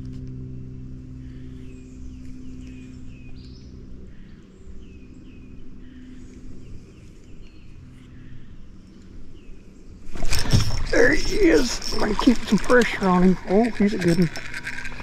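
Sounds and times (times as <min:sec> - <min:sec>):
electric motor hum: 0:10.1 - 0:15.0.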